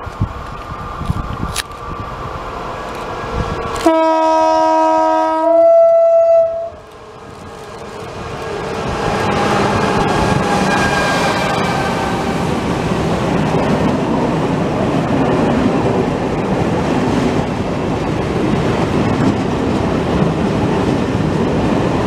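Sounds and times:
train rumbling past: 0.0 - 22.0
train horn: 3.8 - 6.9, 9.4 - 12.7.

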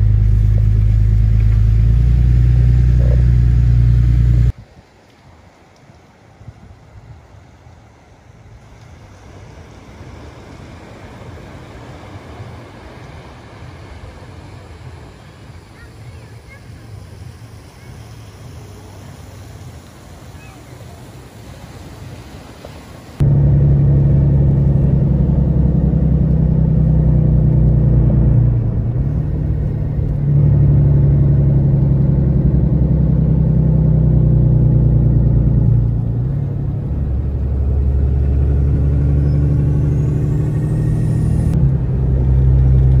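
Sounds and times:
car cabin engine and road rumble: 0.0 - 4.6, 22.6 - 43.0.

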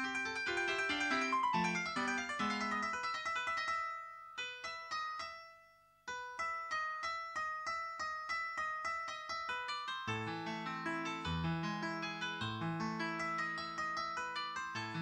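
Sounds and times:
piano music: 0.0 - 3.0, 10.1 - 15.0.

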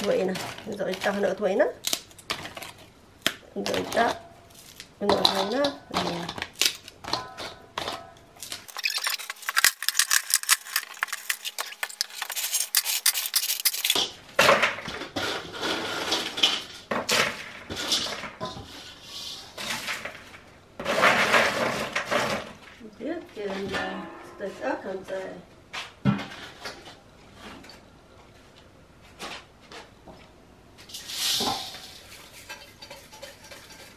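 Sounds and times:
pots and pans clattering: 7.0 - 22.6, 31.0 - 33.9.

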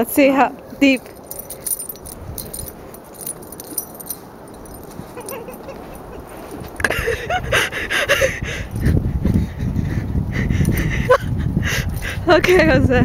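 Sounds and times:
leash and tags jingling: 0.0 - 9.7, 10.4 - 12.8.

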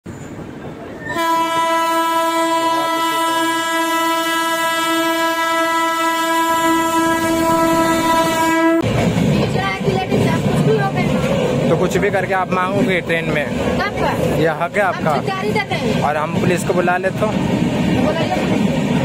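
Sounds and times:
low rumble of approaching train: 0.0 - 19.0
train horn long blast: 1.1 - 8.9.

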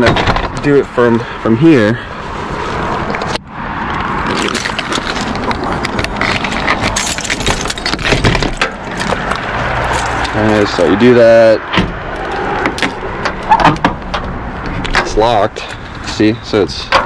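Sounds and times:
keys jangling: 6.2 - 8.6.

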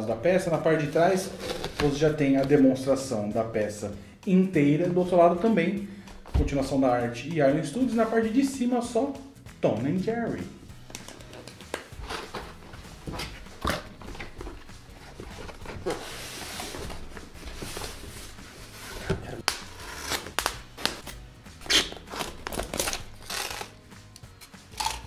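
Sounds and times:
styrofoam rubbing and rustling: 0.8 - 2.0, 14.5 - 21.0, 21.6 - 23.8.

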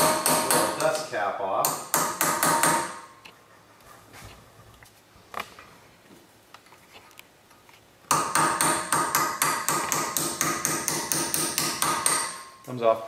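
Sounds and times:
hammer striking chisel on metal: 0.0 - 1.0, 1.6 - 3.1, 8.1 - 12.6.

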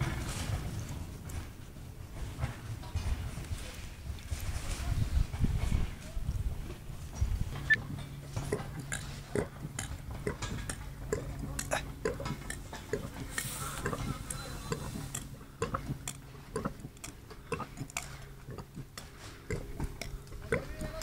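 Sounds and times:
low steady hum: 0.0 - 21.0
dog chewing grass: 6.4 - 21.0.

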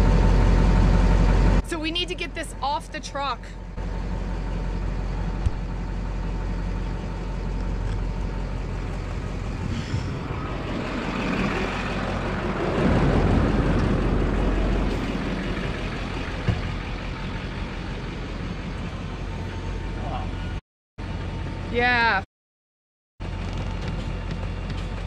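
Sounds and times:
pickup truck engine idling: 3.6 - 21.6.

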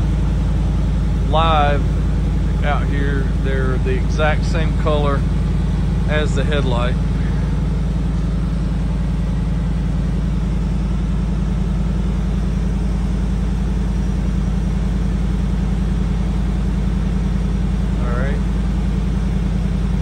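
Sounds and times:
truck engine idling: 0.0 - 20.0.

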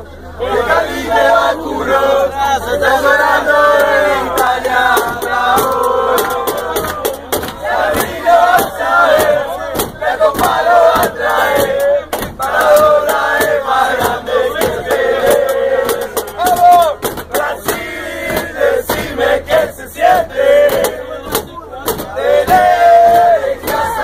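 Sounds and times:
crowd chanting in unison: 0.4 - 24.0
sharp hand claps: 4.4 - 14.7.

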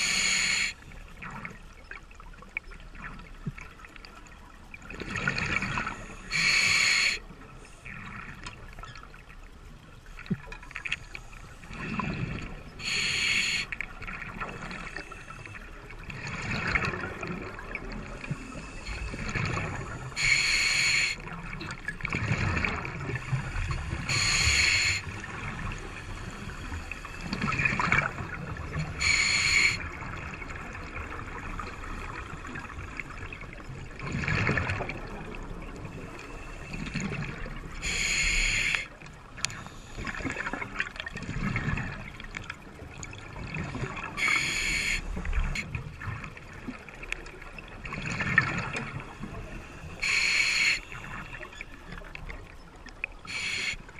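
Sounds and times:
hissing regulator inhales: 0.0 - 0.8, 6.0 - 7.2, 12.8 - 13.8, 18.3 - 21.2, 23.2 - 25.1, 28.9 - 29.8, 37.8 - 38.9, 44.2 - 45.2, 49.3 - 51.6, 53.3 - 53.8
gurgling exhaled bubbles: 16.0 - 20.2, 21.4 - 36.1, 40.0 - 52.5.

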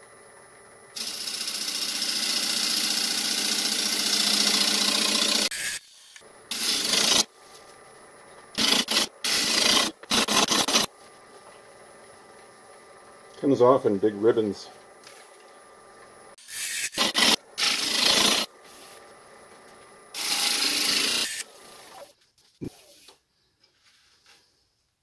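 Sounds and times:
gouge cutting wood on lathe: 1.0 - 5.5, 20.2 - 21.4.

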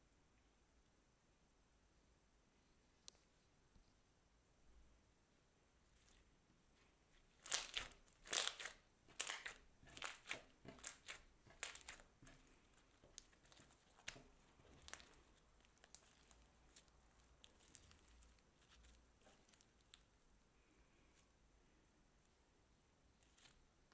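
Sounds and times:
slime crackling and popping: 7.3 - 20.2.

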